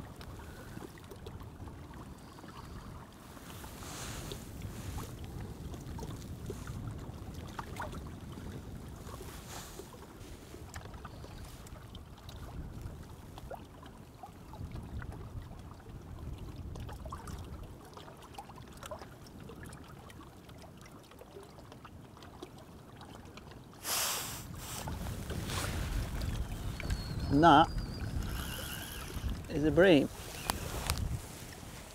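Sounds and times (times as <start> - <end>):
waves lapping on stony shore: 0.0 - 13.6, 23.8 - 31.9
wind rumble on microphone: 0.0 - 18.0, 24.4 - 31.9.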